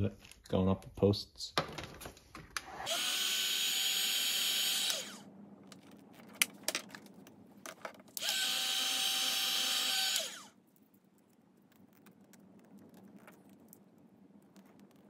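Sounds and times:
heat gun blowing and whirring: 0:02.8 - 0:05.2, 0:08.2 - 0:10.6.

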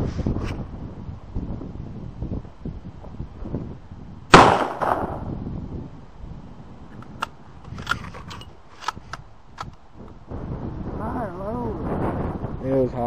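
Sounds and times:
rifle shot: 0:04.3 - 0:05.3.

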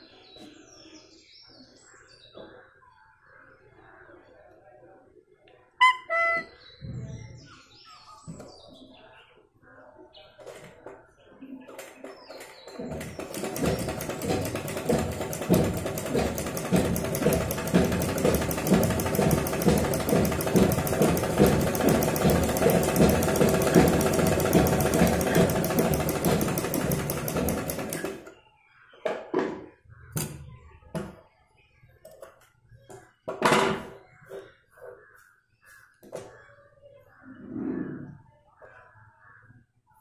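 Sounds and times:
sewing machine clatter: 0:11.7 - 0:28.4.

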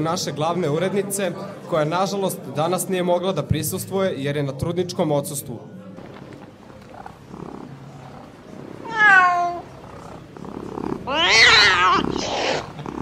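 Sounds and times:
cat meowing: 0:08.8 - 0:09.7, 0:10.9 - 0:12.9.

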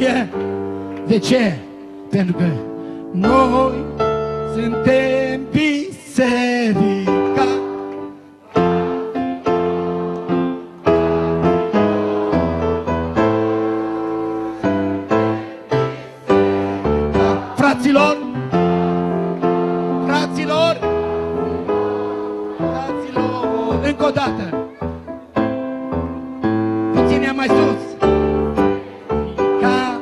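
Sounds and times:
keyboard chords: 0:00.0 - 0:30.0
person singing: 0:03.1 - 0:04.0, 0:04.6 - 0:07.7, 0:22.5 - 0:24.8.

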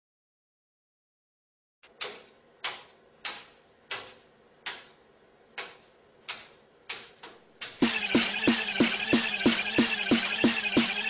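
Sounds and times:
music with steady beat: 0:07.6 - 0:11.0.

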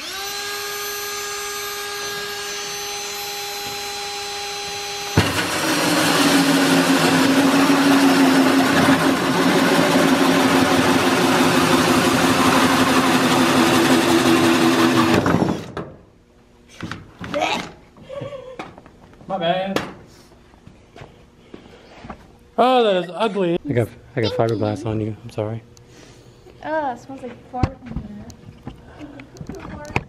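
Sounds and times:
electric drill motor whining: 0:00.0 - 0:15.8.

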